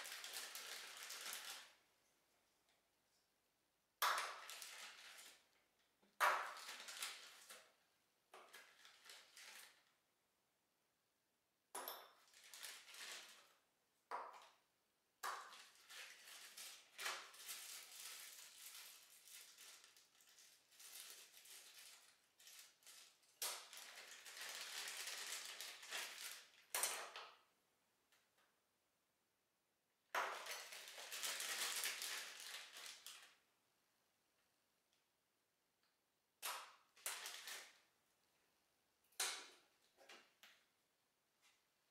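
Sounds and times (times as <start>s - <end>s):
plastic bags crinkling: 0.0s - 1.8s, 6.4s - 7.6s, 8.4s - 9.9s, 12.2s - 13.5s, 15.5s - 26.7s, 30.3s - 33.4s, 37.0s - 37.8s.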